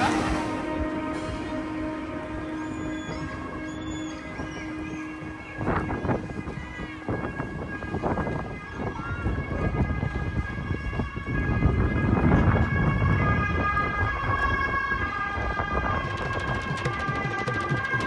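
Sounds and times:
drums: 0.0s - 1.6s, 16.0s - 18.0s
low rumbling noise: 0.0s - 8.6s
music of long held tones: 0.0s - 18.0s.

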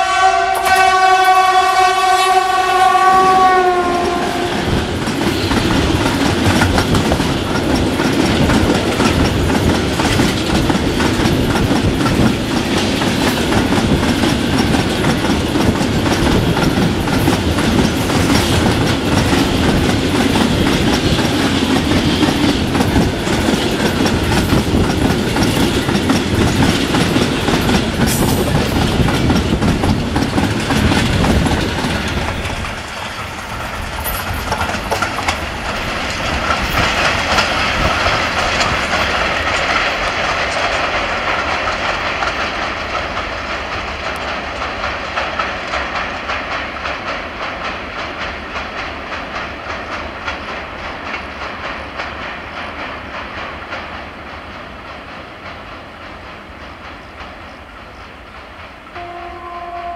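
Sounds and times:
diesel locomotive horn blast: 0.0s - 4.7s, 58.9s - 59.9s
freight train rumbling past: 0.0s - 59.9s
wagon wheels clattering on rails: 3.8s - 58.6s.

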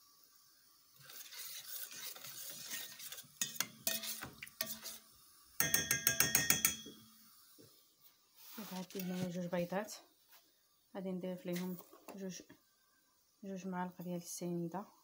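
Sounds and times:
utensil scraping in a bowl: 1.0s - 5.0s, 8.5s - 9.4s.

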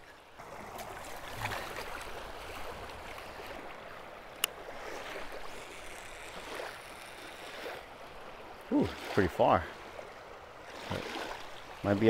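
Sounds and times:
water splashing and swirling: 0.0s - 12.0s
lapping water: 0.4s - 3.7s, 10.7s - 11.4s.

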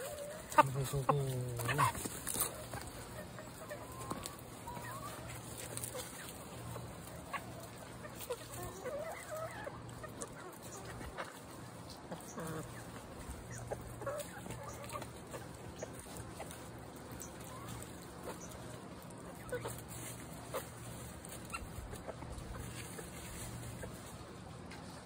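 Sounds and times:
chickens clucking: 0.0s - 25.0s.

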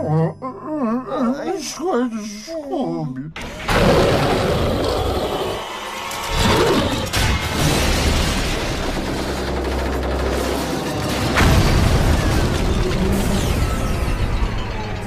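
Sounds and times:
music: 5.4s - 15.0s.

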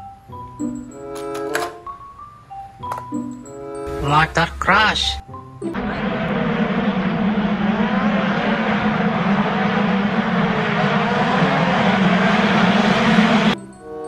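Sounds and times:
dirt bike engines racing: 5.8s - 13.6s.

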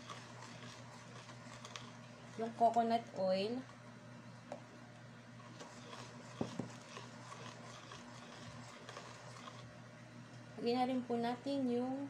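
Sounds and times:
whisk scraping metal bowl: 0.0s - 2.6s, 5.4s - 9.7s.

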